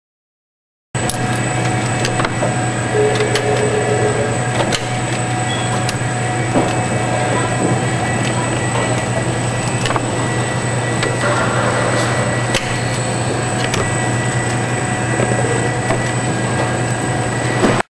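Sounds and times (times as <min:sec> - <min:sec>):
low machine hum: 0:01.0 - 0:17.8
thin high whine: 0:02.4 - 0:07.5.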